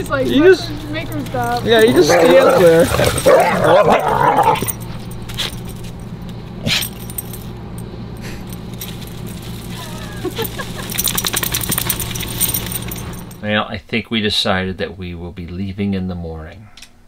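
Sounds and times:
dog collars jingling: 0.0 - 13.4
steady low hum: 0.0 - 17.0.

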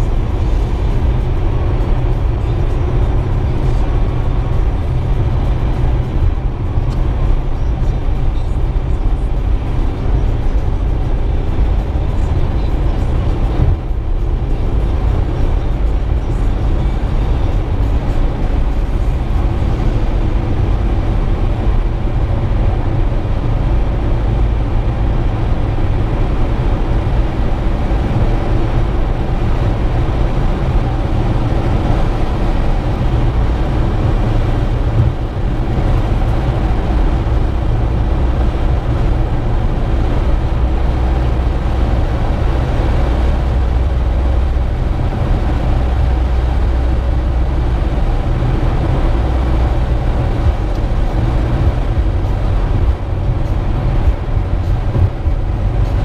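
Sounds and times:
car engine and tyre noise: 0.0 - 56.0.

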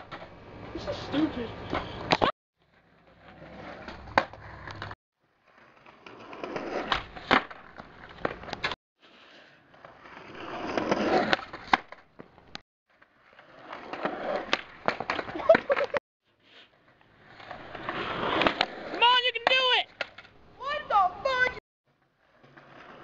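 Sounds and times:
skateboard wheels rolling on concrete: 0.0 - 23.0
skateboard clacking on concrete: 13.0 - 16.0, 18.3 - 20.3.

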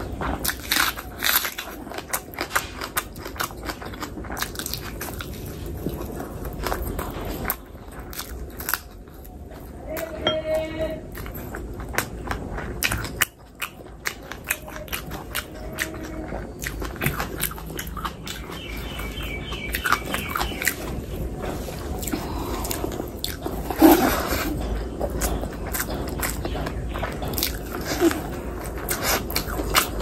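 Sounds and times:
close chewing with wet mouth clicks: 0.0 - 9.8, 11.1 - 30.0.

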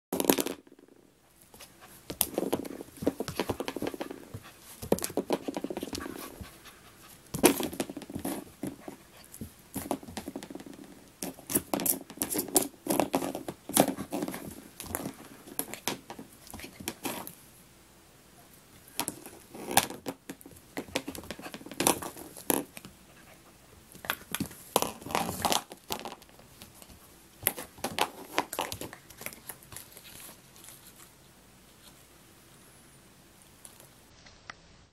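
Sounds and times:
puppy panting: 5.4 - 7.3.

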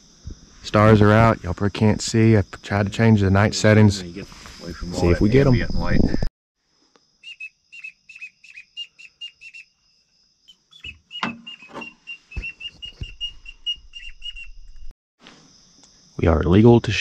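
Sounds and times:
insect trill: 0.0 - 17.0
high whistled chirps: 7.2 - 14.9.

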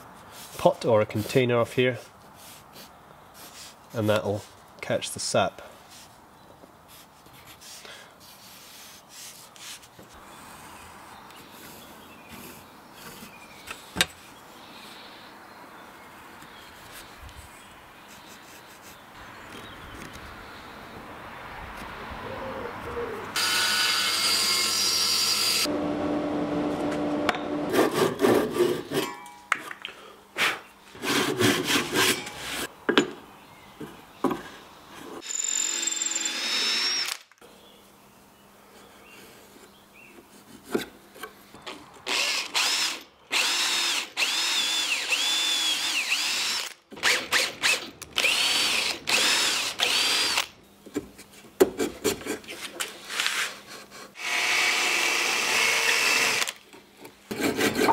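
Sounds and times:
cordless drill boring into wood: 23.4 - 25.7, 35.2 - 37.3, 42.1 - 50.5, 54.2 - 56.6.

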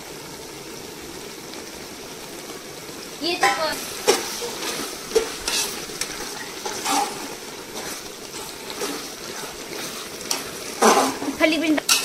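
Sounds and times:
food sizzling: 0.0 - 12.0
spoon scraping metal pot: 3.4 - 12.0.

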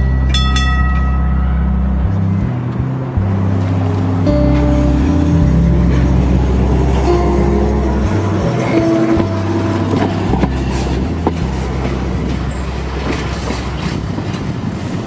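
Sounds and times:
background music: 0.0 - 15.0
streetcar rolling on track: 0.0 - 15.0
wheels clicking over rail joints: 3.6 - 15.0.

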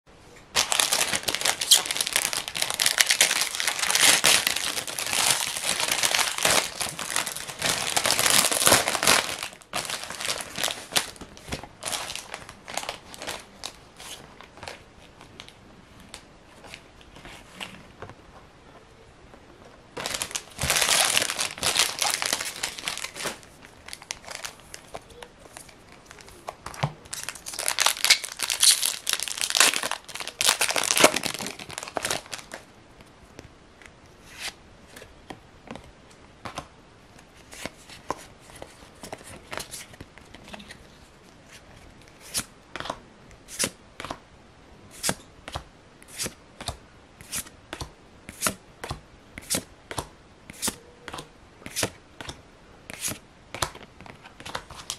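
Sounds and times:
foil wrapper tearing and crinkling: 0.6 - 11.2, 20.0 - 24.8, 27.1 - 32.6.

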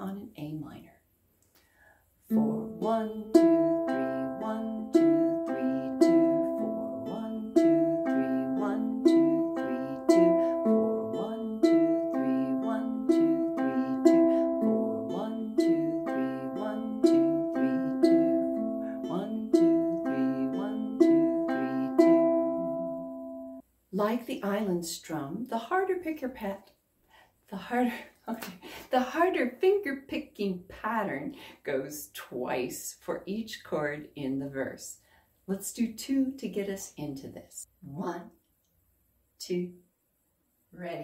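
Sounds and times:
ukulele fingerpicking: 2.3 - 23.6.

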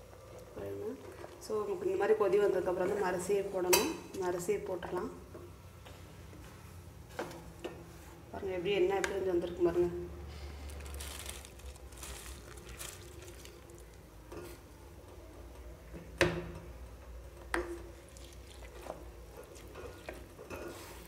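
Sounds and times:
rice splashing into liquid: 18.0 - 20.2.

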